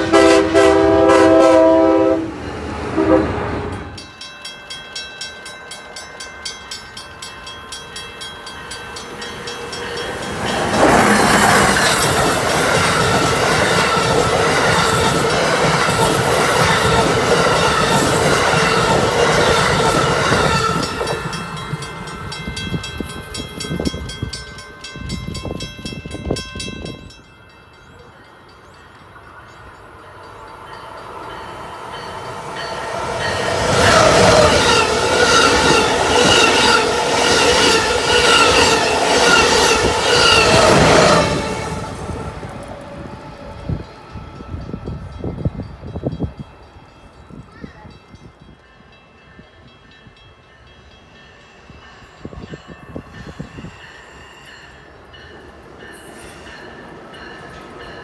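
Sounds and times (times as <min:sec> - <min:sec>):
train horn: 0:00.0 - 0:04.0
train passing at speed: 0:00.0 - 0:58.0.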